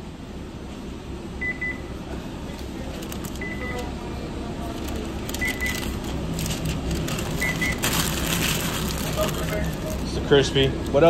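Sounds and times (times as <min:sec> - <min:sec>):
machinery hum: 0:00.0 - 0:11.0
kitchen equipment beeps: 0:01.4 - 0:01.9, 0:03.3 - 0:03.9, 0:05.3 - 0:06.1, 0:07.3 - 0:07.9
paper wrapper crinkling: 0:02.8 - 0:03.8, 0:04.6 - 0:11.0.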